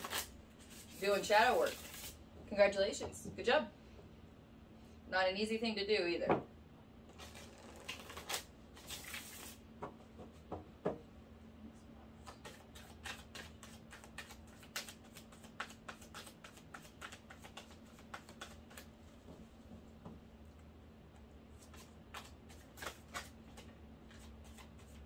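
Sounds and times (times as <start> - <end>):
cards being shuffled: 0.0 - 2.2, 7.2 - 9.6, 12.2 - 18.9, 21.6 - 25.0.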